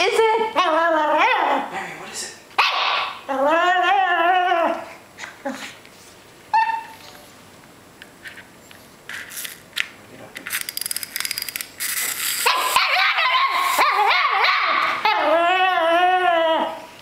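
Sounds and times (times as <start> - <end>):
dog yipping: 2.6 - 3.2, 6.5 - 7.0, 12.4 - 15.4
wind-up toy clicking: 10.4 - 12.7.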